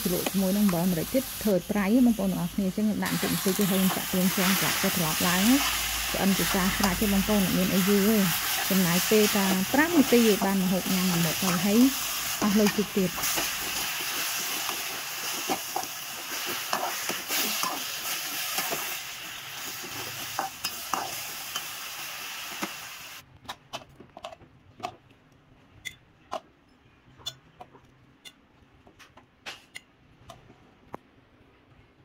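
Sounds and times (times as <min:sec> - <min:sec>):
greens sizzling in a wok: 0:00.0 - 0:23.2.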